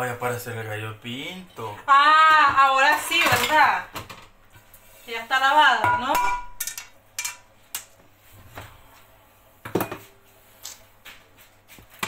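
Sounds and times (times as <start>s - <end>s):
dishes and utensils clinking: 5.8s - 7.9s.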